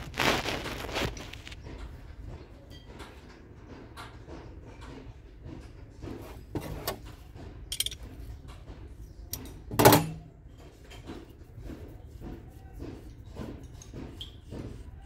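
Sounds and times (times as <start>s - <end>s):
metal thunk: 9.7s - 10.3s.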